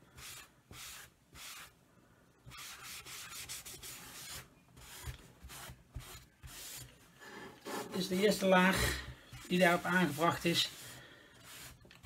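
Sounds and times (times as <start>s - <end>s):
cloth rubbing on wood: 7.6s - 11.8s.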